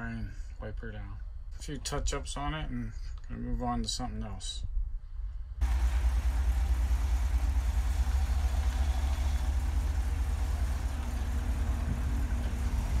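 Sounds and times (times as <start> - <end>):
van engine idling: 5.6 - 13.0.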